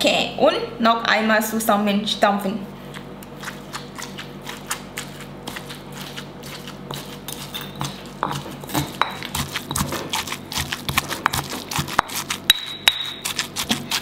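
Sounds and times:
pestle pounding in mortar: 3.4 - 14.0.

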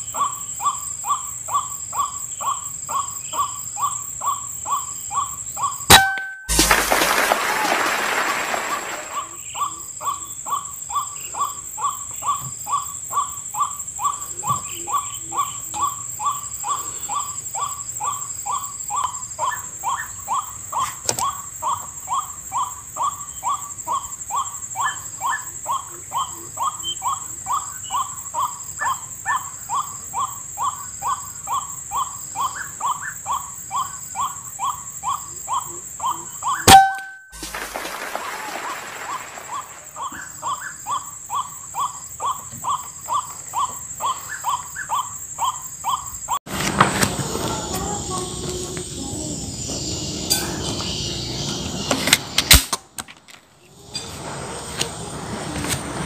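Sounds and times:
waterhen calling: 5.9 - 10.2, 36.5 - 45.6
steady high-pitched whine: 46.9 - 52.5.

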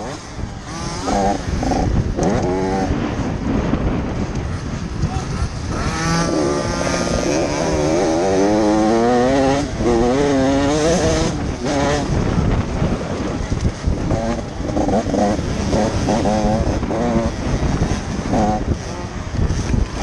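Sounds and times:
motocross bike engine revving: 0.0 - 20.0
wind rushing over microphone: 0.0 - 20.0.

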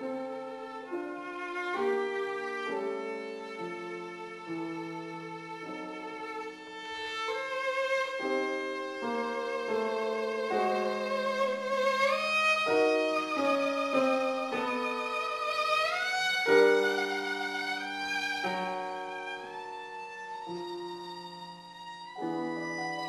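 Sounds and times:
piano chords: 0.0 - 23.0
violin: 0.0 - 23.0.

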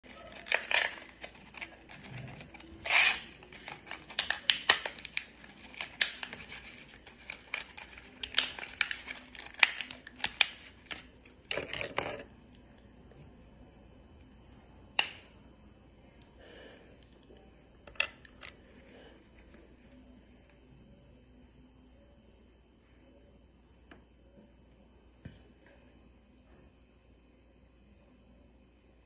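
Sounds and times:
blister pack crinkling: 0.1 - 11.1.

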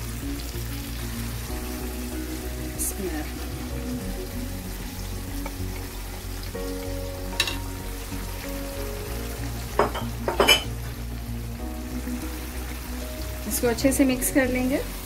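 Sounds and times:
chicken sizzling in oil: 0.0 - 15.0
spatula knocking on pan: 9.7 - 10.7.

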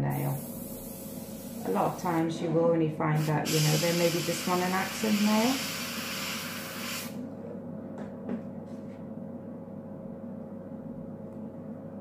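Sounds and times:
airbrush hissing: 0.0 - 2.3, 3.2 - 7.2
low steady hum: 0.0 - 12.0.

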